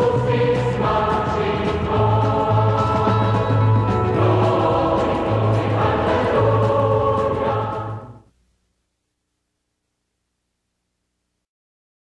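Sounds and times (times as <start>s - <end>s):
choir singing: 0.0s - 8.2s
instrumental accompaniment: 0.0s - 8.2s.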